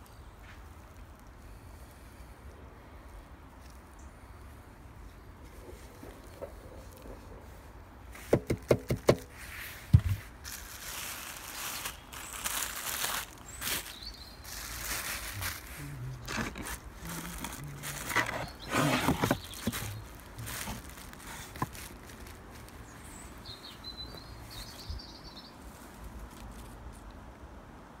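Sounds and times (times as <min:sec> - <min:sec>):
bubble wrap rustling and crinkling: 0:05.7 - 0:25.0, 0:25.6 - 0:27.1
small bird chirping: 0:11.6 - 0:15.6, 0:22.6 - 0:25.6.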